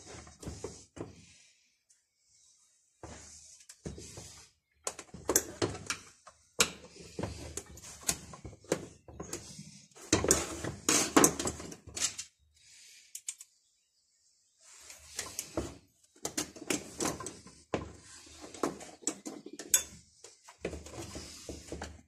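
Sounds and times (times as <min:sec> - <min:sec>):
tools rattling on steel workbench: 0:18.6 - 0:20.0.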